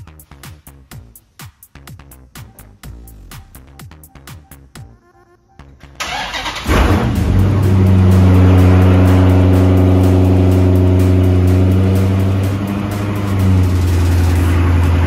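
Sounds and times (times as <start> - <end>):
car engine starting and idling: 5.8 - 15.0.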